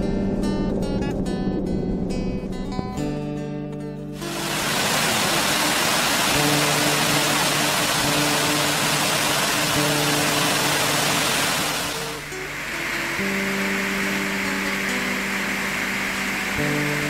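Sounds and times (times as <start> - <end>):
soft guitar music: 0.0 - 17.0
water pouring over a weir: 4.2 - 16.0.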